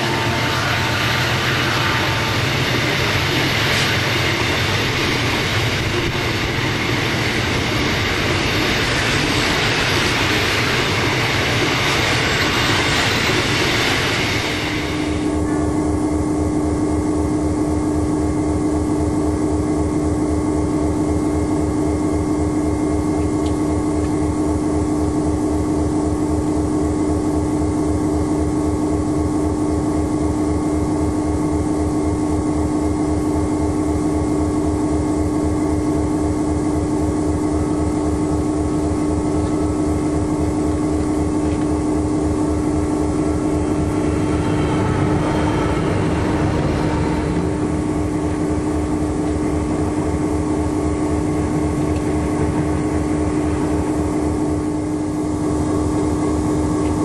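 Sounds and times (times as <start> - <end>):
freight train passing: 0.0 - 18.1, 37.2 - 57.0.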